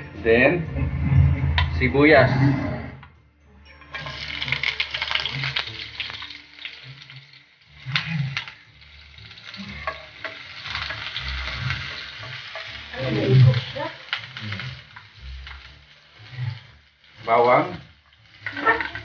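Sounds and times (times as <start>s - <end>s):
onion sizzling in hot oil: 3.8s - 19.0s.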